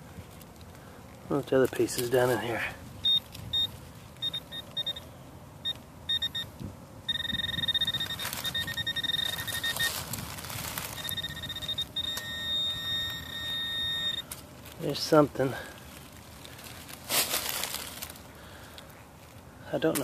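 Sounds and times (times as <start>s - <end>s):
pinpointer probe beeping: 3.0s - 6.5s, 7.1s - 10.1s, 10.8s - 14.4s.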